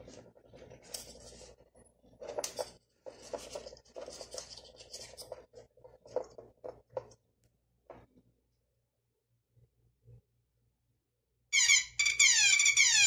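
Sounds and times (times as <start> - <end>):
wire scraping over tabletop: 0.0 - 7.1.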